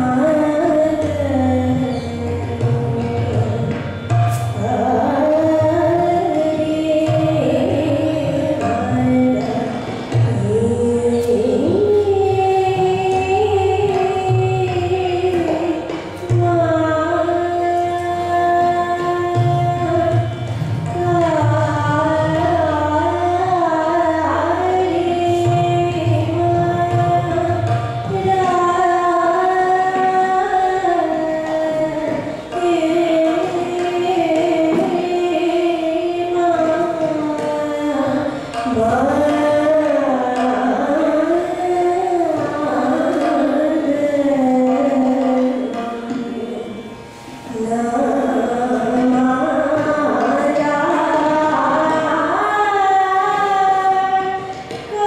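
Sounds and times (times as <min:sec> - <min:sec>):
woman singing classical style: 0:00.0 - 0:03.9, 0:04.5 - 0:55.0.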